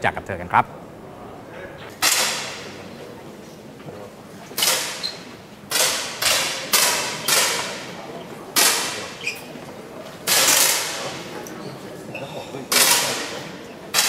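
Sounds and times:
air pistol shots echoing: 10.3 - 11.1.

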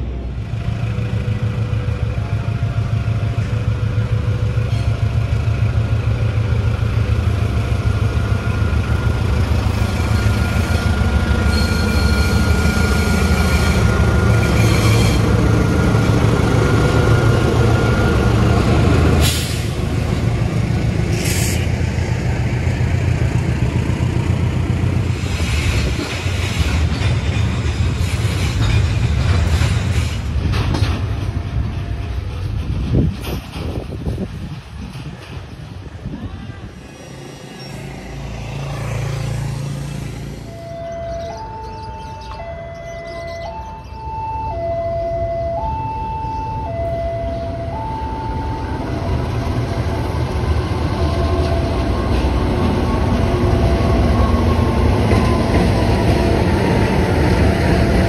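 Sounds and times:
locomotive engine rumbling: 0.0 - 58.0
train wheels clattering on rails: 7.4 - 36.2, 49.1 - 58.0.

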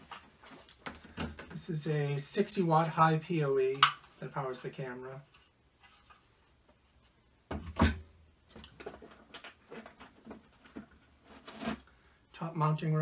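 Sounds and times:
cardboard rustling: 8.7 - 11.8.

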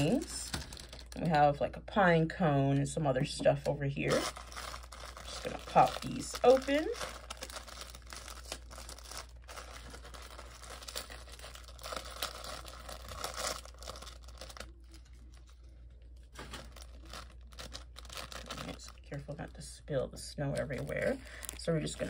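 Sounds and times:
plastic packaging crinkling: 0.0 - 1.5, 3.2 - 19.6, 20.5 - 22.0.

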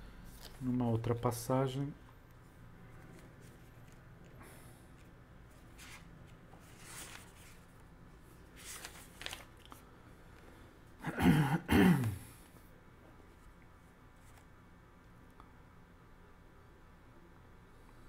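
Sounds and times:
book pages rustling and turning: 0.3 - 0.8, 2.3 - 9.8, 13.3 - 14.6.

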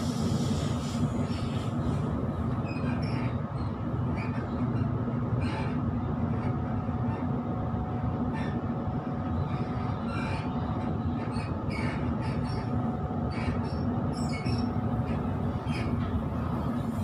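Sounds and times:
train wheels rumbling on track: 0.0 - 17.0
high wheel squeals: 9.5 - 16.0.

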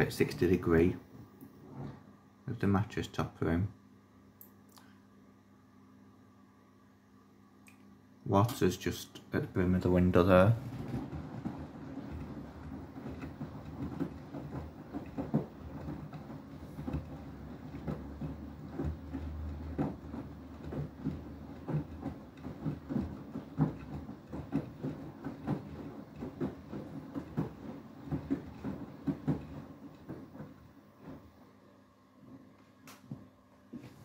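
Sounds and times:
washing machine motor hum: 0.0 - 34.0
wet load sloshing thuds: 9.4 - 31.4.

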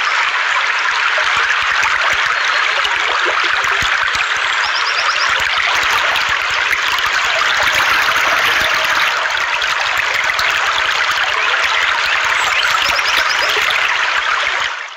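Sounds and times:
stream rippling over rocks: 0.0 - 14.9.

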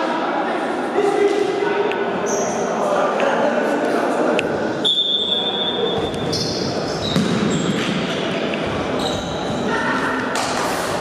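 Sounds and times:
ball kicked: 7.1 - 7.6
ball bouncing on wooden floor: 7.1 - 7.9.

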